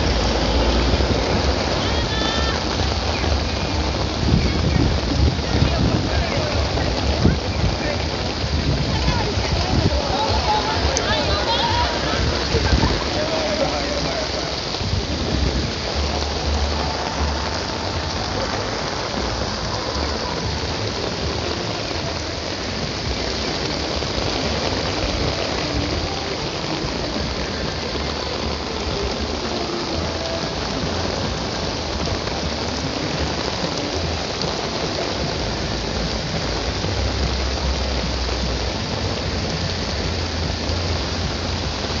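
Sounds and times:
rain on hard surfaces: 0.0 - 42.0.

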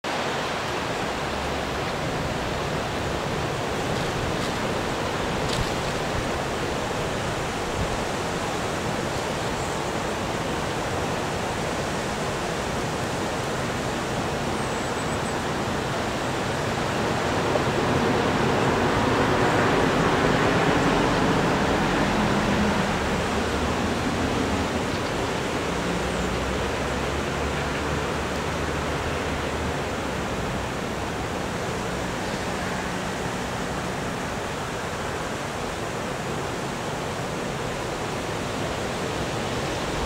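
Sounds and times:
wind: 0.0 - 40.0.

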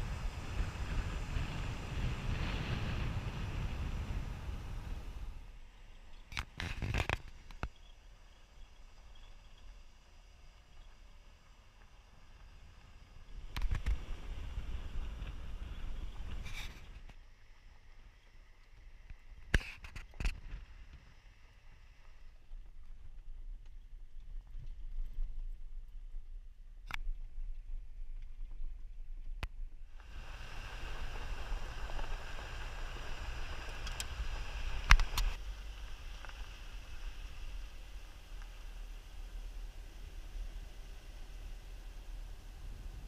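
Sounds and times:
tyre and road noise hiss: 0.0 - 17.8, 29.9 - 43.0
car engine and road rumble: 0.0 - 19.4, 29.6 - 43.0.

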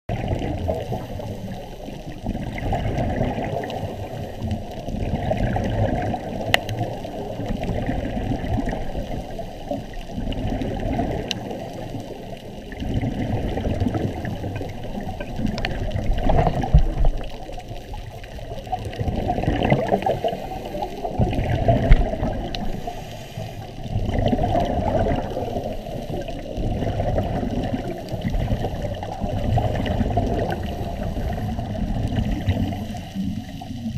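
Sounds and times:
bubbles gurgling: 0.1 - 33.9
small clicks: 6.5 - 6.9
diver breathing through regulator: 19.8 - 24.0, 28.3 - 33.6.

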